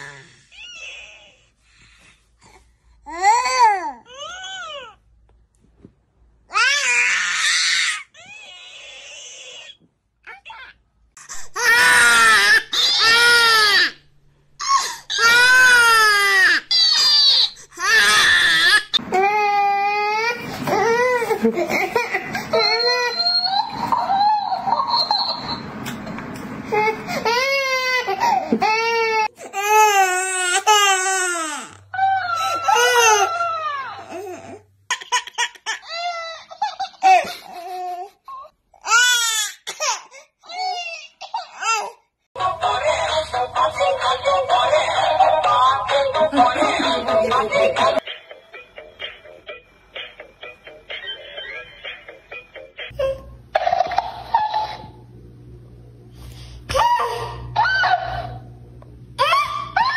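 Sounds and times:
infant crying hard: 11.3s - 14.0s, 14.6s - 17.1s
babies crying: 11.4s - 14.0s, 14.6s - 25.1s, 26.7s - 34.6s
toy repeating cries high-pitched: 16.7s - 17.6s.

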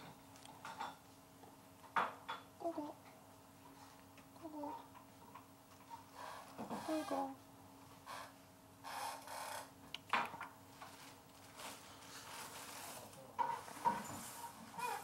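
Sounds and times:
rustling: 10.7s - 15.0s.

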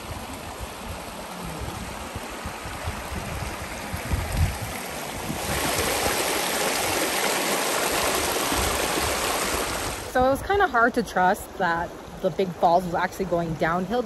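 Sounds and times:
water rushing over rocks: 0.0s - 14.0s.

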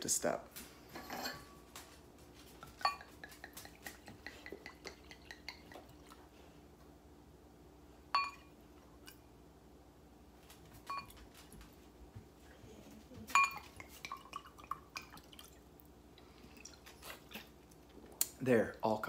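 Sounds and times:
bottle clinking against glass: 8.2s - 8.5s, 13.3s - 13.7s.

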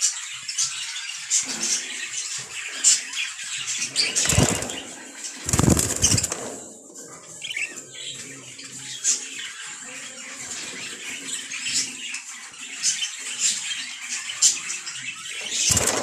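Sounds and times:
budgerigar wing-flapping: 4.0s - 6.6s, 15.6s - 16.0s.

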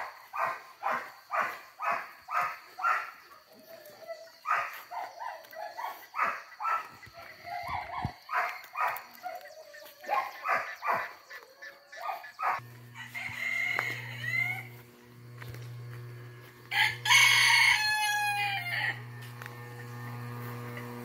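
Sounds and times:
chickens calling: 0.0s - 21.0s
steady low hum: 12.4s - 17.1s, 18.4s - 21.0s.

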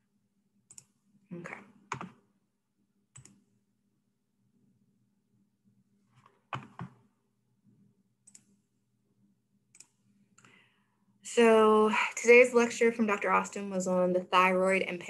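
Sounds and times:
computer mouse clicking: 0.6s - 1.0s, 1.9s - 2.2s, 3.1s - 3.5s, 6.2s - 7.0s, 8.2s - 8.6s, 9.7s - 10.6s.

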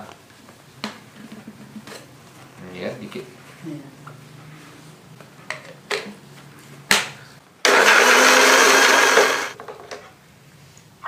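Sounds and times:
small electric blender running: 7.6s - 9.6s.

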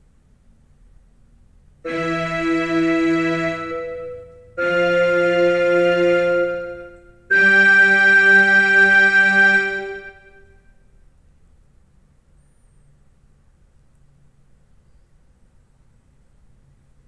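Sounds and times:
keyboard playing held chords: 1.9s - 10.6s.

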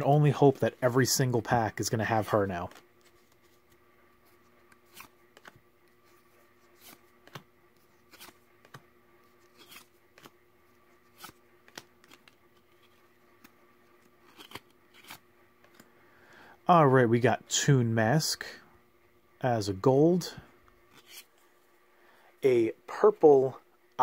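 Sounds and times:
cards flicking: 4.7s - 5.6s, 6.8s - 10.4s, 11.1s - 12.8s.

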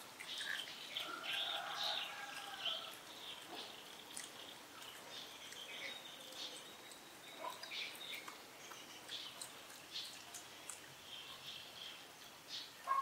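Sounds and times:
low steady hiss: 0.0s - 13.0s
birds chirping: 0.2s - 13.0s.

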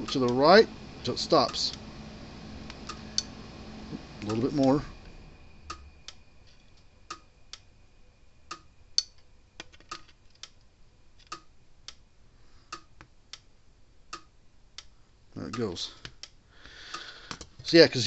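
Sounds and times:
electric fence ticking: 0.0s - 7.8s, 8.4s - 12.1s, 12.7s - 17.5s.

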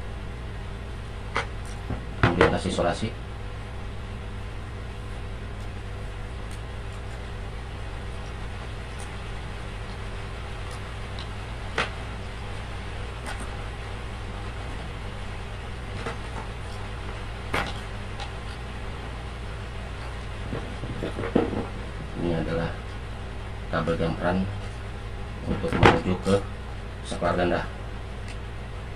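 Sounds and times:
low background hum: 0.0s - 28.9s
wire and tape handling noises: 5.0s - 23.0s, 25.4s - 26.4s.

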